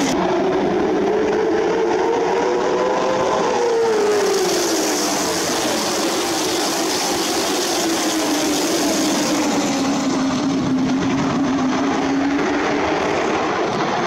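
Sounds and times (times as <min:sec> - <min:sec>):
stock car engines racing: 0:00.0 - 0:14.0.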